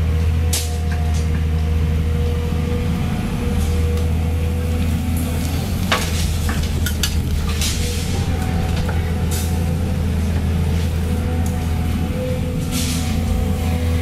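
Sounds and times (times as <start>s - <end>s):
excavator diesel engine running: 0.0s - 14.0s
debris clattering into truck bed: 5.4s - 10.9s.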